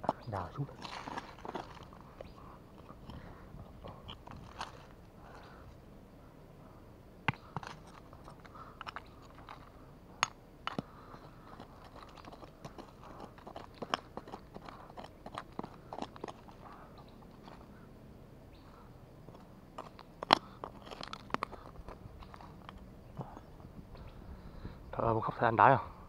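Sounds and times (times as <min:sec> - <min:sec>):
gravel crunching: 0:00.0 - 0:26.0
pebbles clicking: 0:00.1 - 0:03.2, 0:07.3 - 0:17.6, 0:19.3 - 0:23.3
metal rod scraping stony soil: 0:00.5 - 0:03.2, 0:10.7 - 0:16.7, 0:19.3 - 0:23.4.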